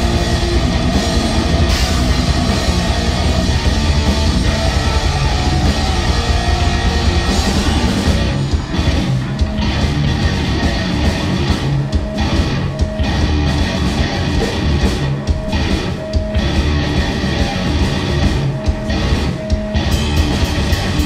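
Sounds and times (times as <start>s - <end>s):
distorted electric guitar: 0.0s - 21.0s
drum kit: 0.0s - 21.0s.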